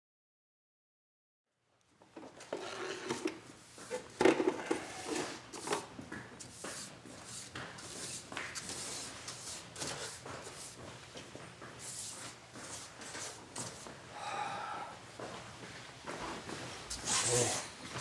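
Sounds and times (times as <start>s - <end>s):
broom sweeping floor: 2.5s - 14.1s, 15.3s - 18.0s.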